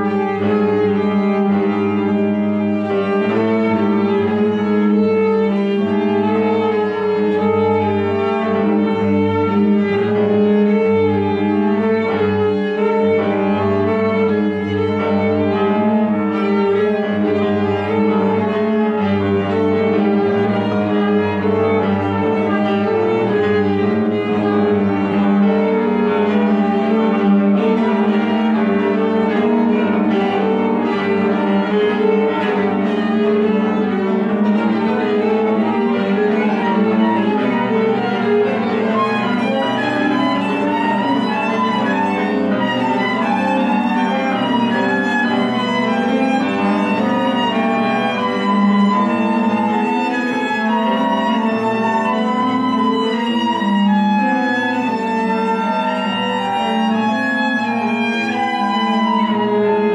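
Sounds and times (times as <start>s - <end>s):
bowed cello: 0.0s - 59.9s
bowed violin: 0.0s - 59.9s
clarinet: 0.0s - 59.9s
piano: 0.0s - 59.9s
flute: 33.8s - 59.9s.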